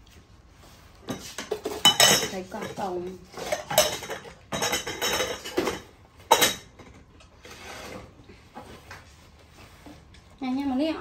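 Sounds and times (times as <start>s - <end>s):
dishes clinking and scraping: 0.9s - 9.1s.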